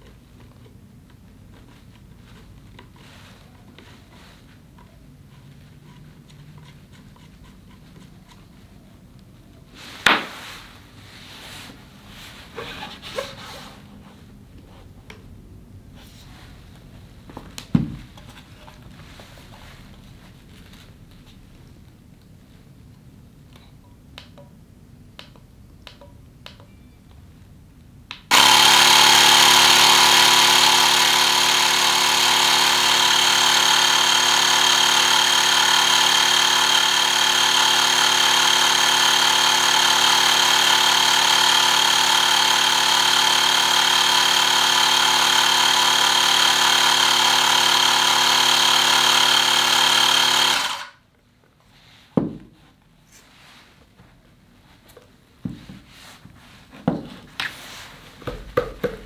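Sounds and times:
electric air pump running: 28.3 - 51.0.

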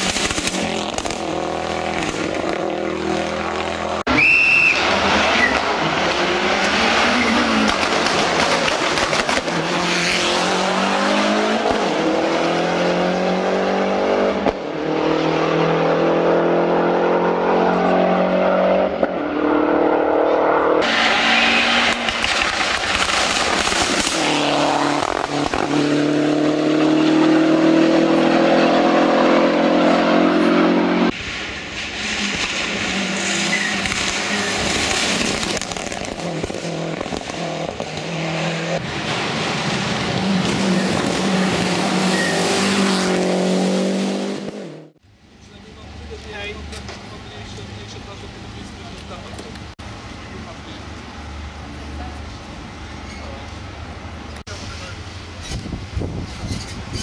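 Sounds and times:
car engine accelerating hard: 4.8 - 31.2, 32.0 - 45.0.

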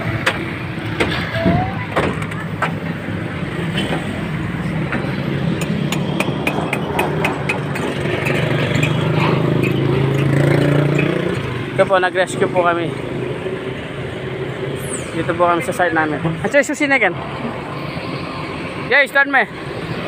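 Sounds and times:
engine running steadily: 0.0 - 16.4.

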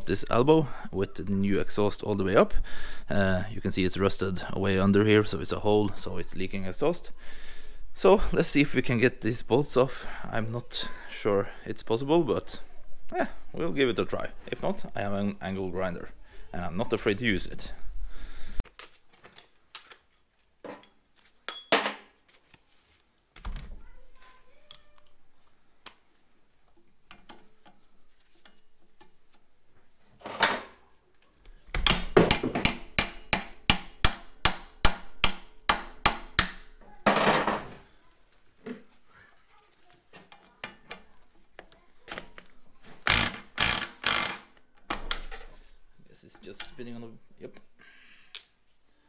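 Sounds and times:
impact wrench hammering: 31.8 - 36.7.

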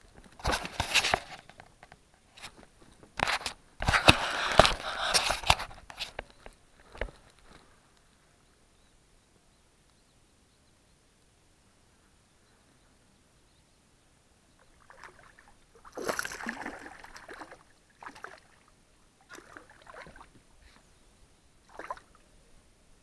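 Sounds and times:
water splashing and sloshing: 14.6 - 20.8, 21.6 - 22.2.

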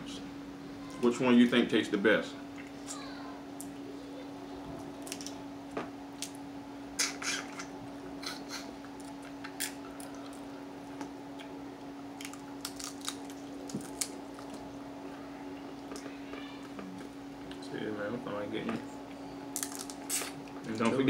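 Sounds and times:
steady low hum: 0.0 - 21.0
crab shells cracking: 5.0 - 5.4, 8.9 - 10.5, 11.4 - 14.6, 19.5 - 20.4.

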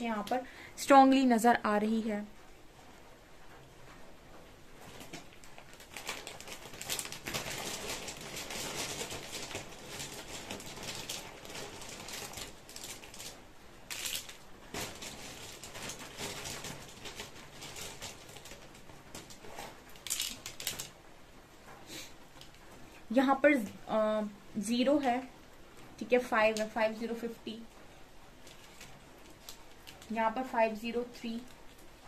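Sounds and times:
plastic pieces rattling: 4.8 - 21.0, 28.4 - 30.2
plastic pieces clattering onto table: 5.0 - 21.0.

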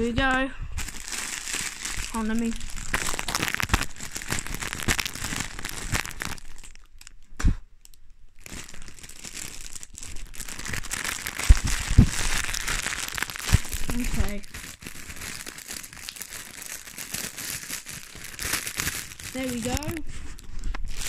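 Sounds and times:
packaging crinkling and tearing: 0.8 - 21.0
loud thumps: 11.4 - 12.4.

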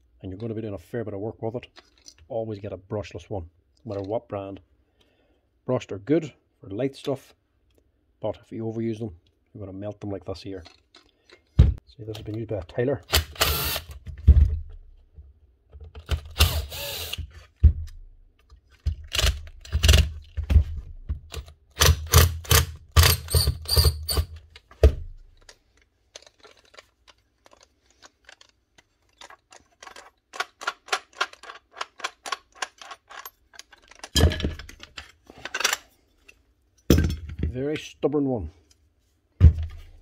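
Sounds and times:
drill-driver running in bursts: 13.2 - 13.9, 16.4 - 17.2.

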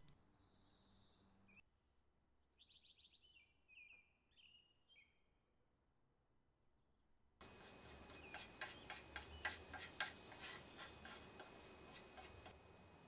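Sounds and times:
faint bird chirp: 0.0 - 6.0
putty knife scraping and tapping: 7.4 - 12.6.

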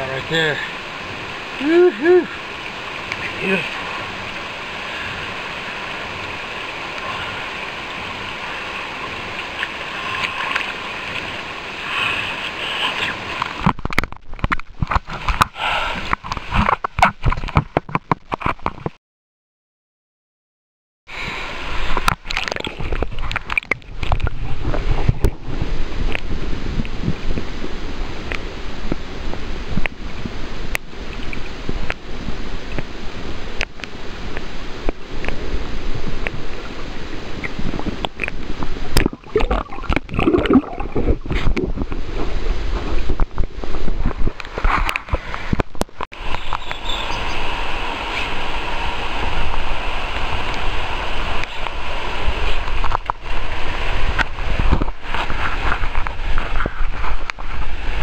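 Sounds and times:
river water rushing: 0.0 - 16.8, 21.1 - 45.6, 46.2 - 58.0
water sloshing and splashing: 0.3 - 19.0, 21.6 - 29.0, 33.6 - 47.4, 48.0 - 58.0
sharp clicks at water's edge: 12.9 - 19.0, 22.0 - 24.3, 33.6 - 35.4, 37.4 - 41.7, 52.6 - 53.2
muffled underwater gurgling: 37.4 - 44.3.

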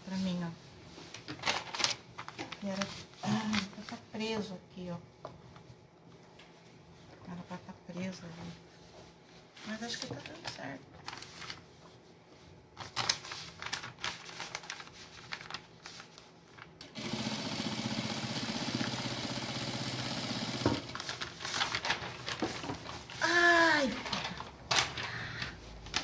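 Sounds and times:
fabric being handled: 11.0 - 16.7
sewing machine stitching: 16.8 - 21.0.

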